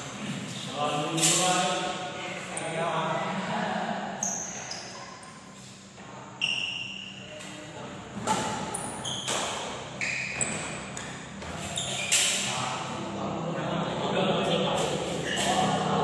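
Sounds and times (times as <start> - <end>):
shoes squeaking on court floor: 4.2 - 12.5, 14.8 - 15.8.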